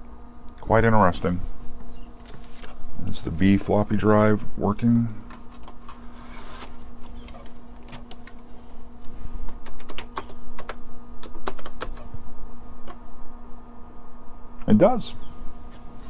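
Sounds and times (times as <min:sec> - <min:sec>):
steady low hum: 0:00.0 - 0:16.0
keyboard keystrokes clicking: 0:09.5 - 0:12.1.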